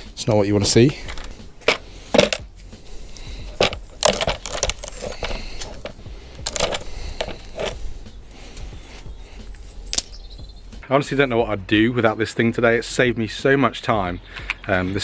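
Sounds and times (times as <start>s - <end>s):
metal tools clinking and knocking: 0.9s - 2.5s, 3.5s - 7.8s.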